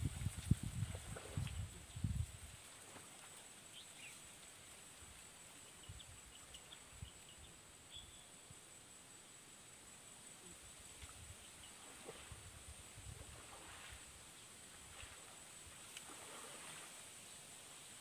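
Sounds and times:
faint bird chirps: 0:03.7 - 0:04.3, 0:05.6 - 0:08.6.

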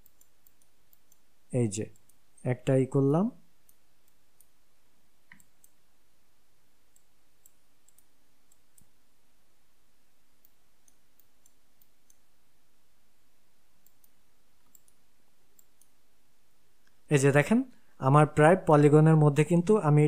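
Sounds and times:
computer mouse clicks: 0:00.0 - 0:01.3, 0:01.9 - 0:02.2, 0:03.6 - 0:04.6, 0:05.3 - 0:05.8, 0:06.9 - 0:09.0, 0:10.4 - 0:12.3, 0:13.8 - 0:16.0
faint steady hum: 0:00.0 - 0:20.0.

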